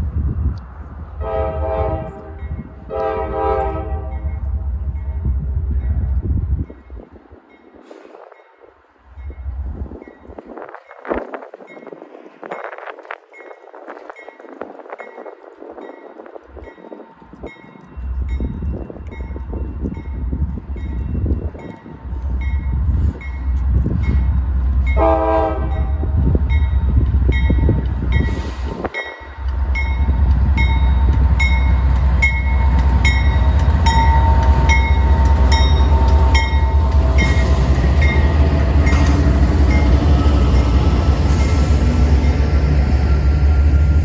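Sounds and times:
train horn blast: 0:01.2 - 0:04.4, 0:25.0 - 0:26.2
locomotives rumbling: 0:25.6 - 0:44.0
crossing bell ringing: 0:29.0 - 0:44.0.

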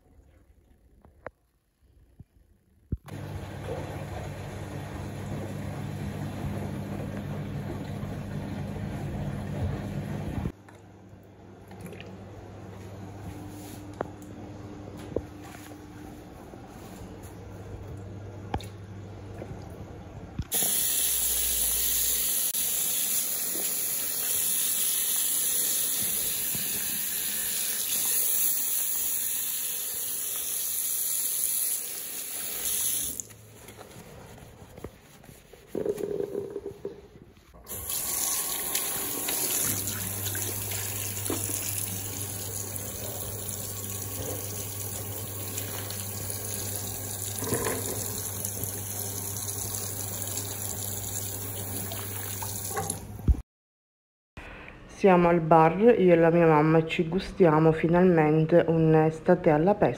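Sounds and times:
tap water running into basin: 0:20.5 - 0:33.3, 0:37.6 - 0:53.3
sponge scrubbing basin: 0:32.4 - 0:37.6.

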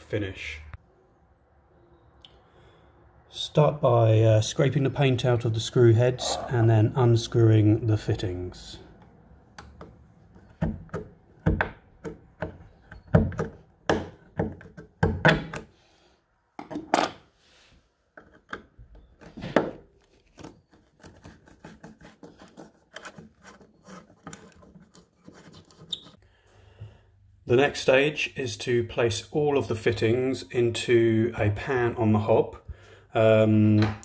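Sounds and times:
screwdriver scraping paint: 0:20.2 - 0:26.2.

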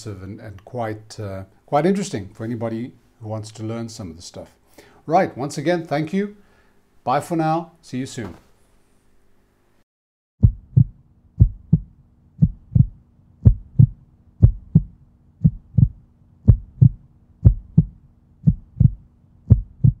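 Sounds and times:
faint steady hum: 0:00.0 - 0:09.8, 0:10.4 - 0:20.0
heartbeat thumps: 0:10.4 - 0:20.0.

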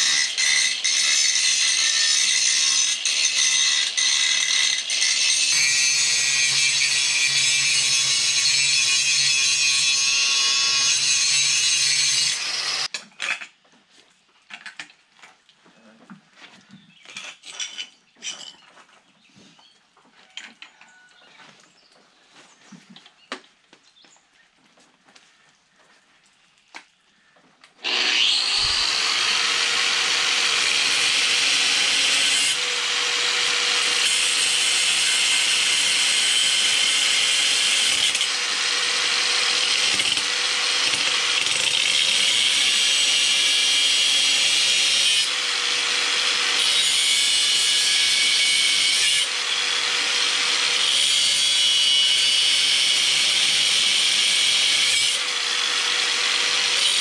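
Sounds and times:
angle grinder grinding steel: 0:00.0 - 0:13.0, 0:27.8 - 0:57.0.

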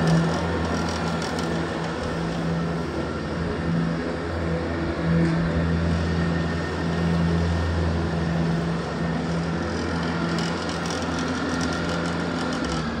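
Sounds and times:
mower engine droning: 0:00.0 - 0:13.0.

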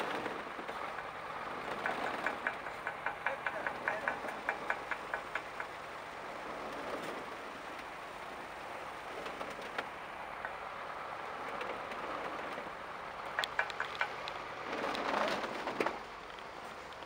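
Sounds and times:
truck diesel engine running: 0:00.0 - 0:17.0
sharp knocks: 0:00.9 - 0:05.9.

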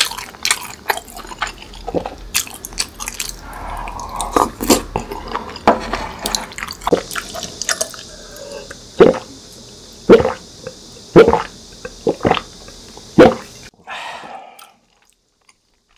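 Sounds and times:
chewing: 0:00.0 - 0:08.8, 0:14.5 - 0:15.9
breathy exhale: 0:03.4 - 0:04.6, 0:13.8 - 0:14.9.

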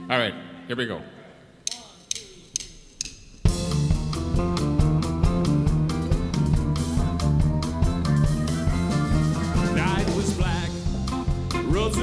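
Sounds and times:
live country band playing: 0:03.5 - 0:12.0.

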